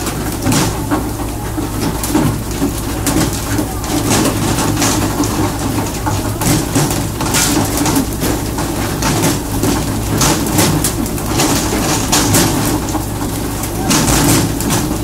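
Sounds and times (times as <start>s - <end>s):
boat engine running: 0.0s - 15.0s
fish splashing and slapping on deck: 0.0s - 15.0s.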